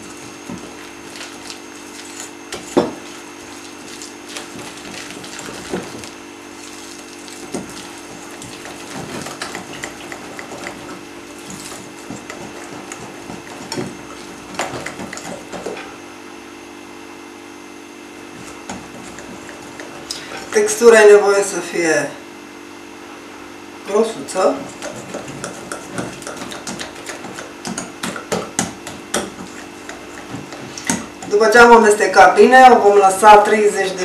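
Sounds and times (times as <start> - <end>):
whisk beating batter in glass bowl: 0.0 - 15.9, 18.3 - 20.5, 24.6 - 32.0
steady low hum: 0.0 - 33.0.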